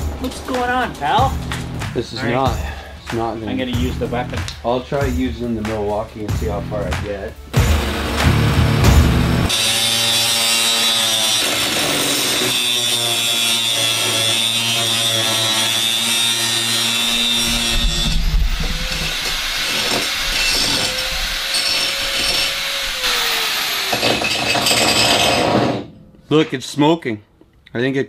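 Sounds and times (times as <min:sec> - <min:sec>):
angle grinder cutting steel: 0:07.6 - 0:25.9.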